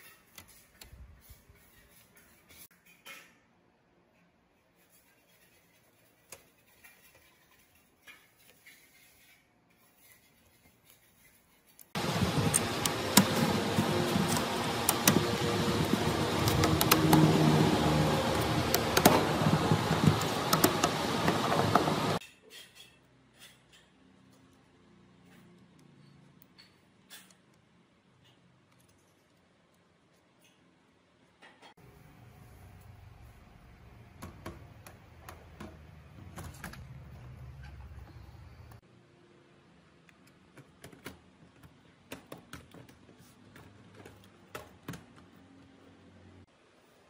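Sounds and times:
screwdriver grinding with clicks: 0:12.0 - 0:22.0.

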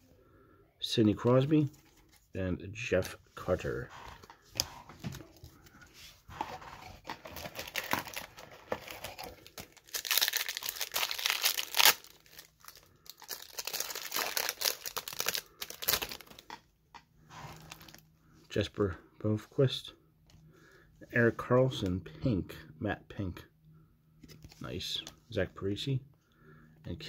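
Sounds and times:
foil wrapper crinkling: 0:07.3 - 0:16.4.

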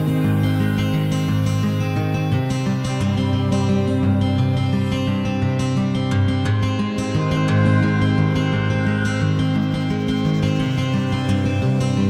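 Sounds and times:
background guitar music: 0:00.0 - 0:12.0.

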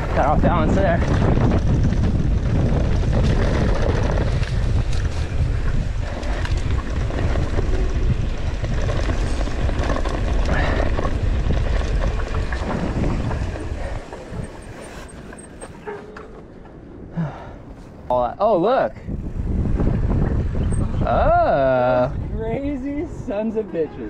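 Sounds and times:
tyres rolling over dirt: 0:00.0 - 0:16.8
bike rattling over bumps: 0:00.0 - 0:16.9, 0:19.3 - 0:22.8
wind buffeting microphone: 0:00.0 - 0:24.0.

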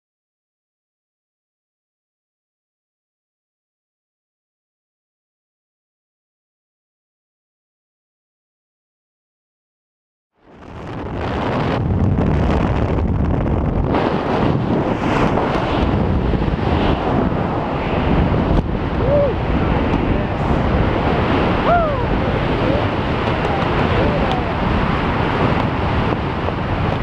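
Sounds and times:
wind buffeting microphone: 0:10.5 - 0:27.0.

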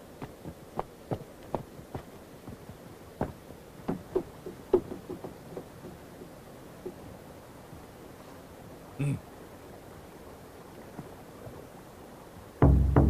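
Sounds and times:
soft knocks: 0:01.1 - 0:07.1.

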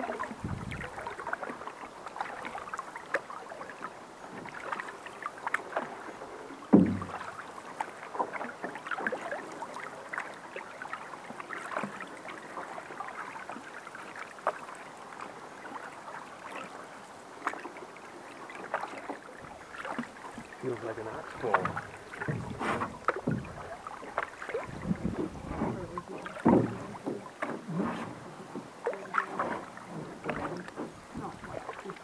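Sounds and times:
canoe paddles dipping in water: 0:00.0 - 0:32.0
water drips and splashes: 0:00.0 - 0:32.0
loud knock: 0:06.8 - 0:07.2.

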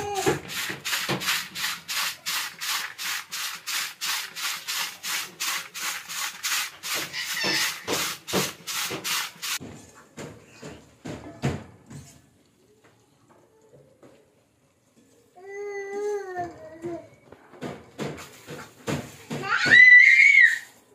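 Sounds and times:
rice scrubbed in plastic bowl: 0:00.0 - 0:09.6, 0:18.2 - 0:19.3.

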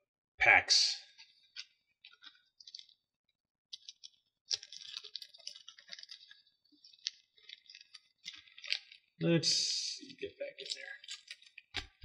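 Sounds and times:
cards and packaging crinkling: 0:01.1 - 0:03.0, 0:03.7 - 0:09.2, 0:10.0 - 0:12.0.

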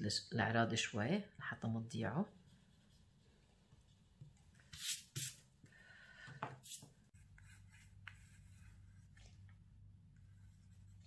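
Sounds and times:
pencil scratching on paper: 0:06.7 - 0:09.2.

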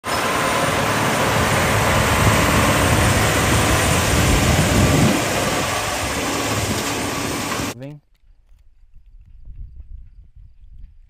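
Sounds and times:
blades rushing through soil: 0:00.0 - 0:07.8
tractor engine under load: 0:00.0 - 0:07.8.

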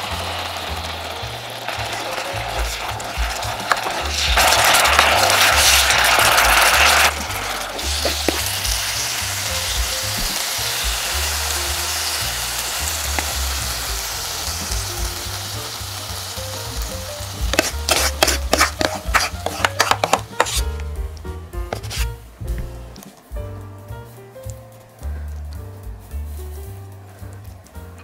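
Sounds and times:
sauce sizzling: 0:00.0 - 0:28.0
sharp clicks and taps: 0:16.8 - 0:23.5.

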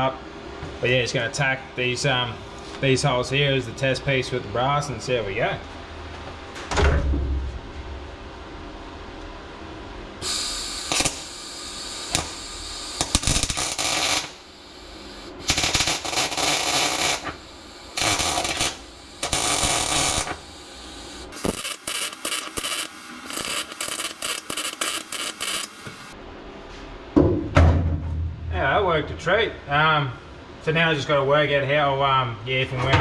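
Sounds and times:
welder arc crackling: 0:10.2 - 0:26.2.

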